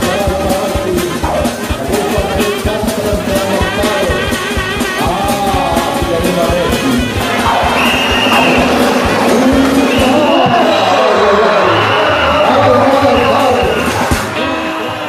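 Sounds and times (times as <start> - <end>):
person singing: 0.0 - 11.7
steady drum beat: 0.0 - 14.4.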